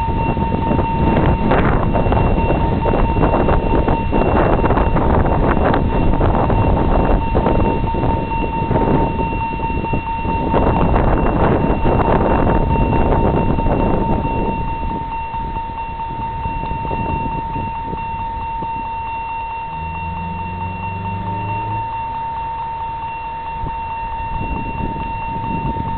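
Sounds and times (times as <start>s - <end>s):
steady high-pitched tone: 0.0s - 25.9s
wind rumbling on microphone: 0.0s - 25.9s
locomotive horn low note: 18.4s - 25.9s.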